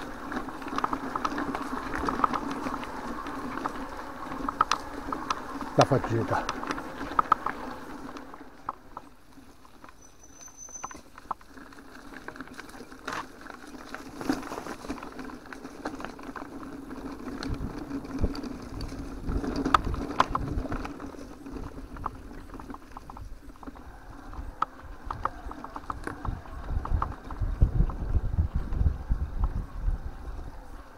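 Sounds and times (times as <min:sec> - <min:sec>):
bike clicks and rattles: 0:00.0 - 0:30.9
bike tyre and drivetrain noise: 0:00.0 - 0:30.9
wind buffeting microphone: 0:16.4 - 0:30.9.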